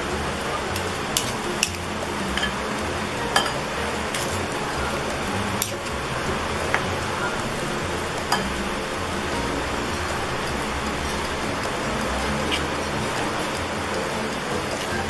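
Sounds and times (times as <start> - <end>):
background hiss: 0.0 - 15.0
spoons clinking against bowl: 3.3 - 15.0.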